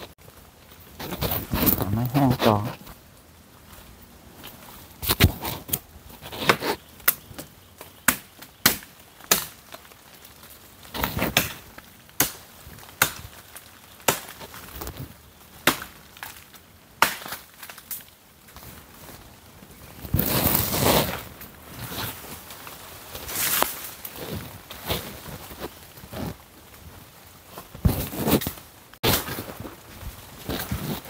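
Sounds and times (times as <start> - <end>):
dry wood chopping and cracking: 5.0 - 10.0, 10.9 - 18.1.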